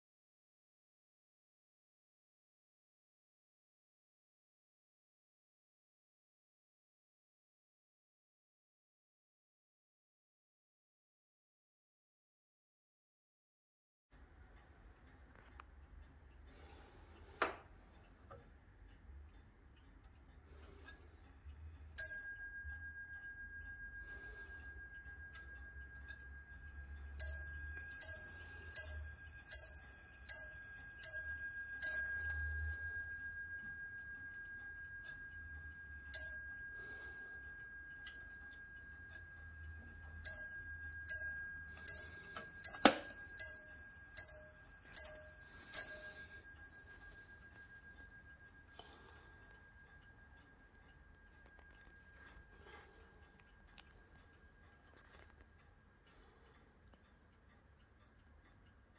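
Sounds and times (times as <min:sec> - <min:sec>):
clock bell striking: 0:22.0 - 0:50.8.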